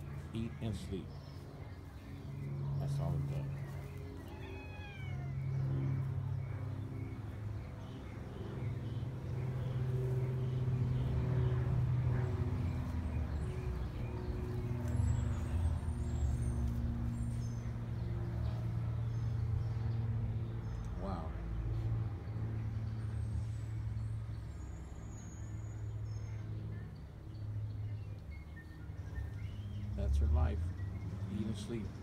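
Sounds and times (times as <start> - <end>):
engine humming: 0.0 - 32.0.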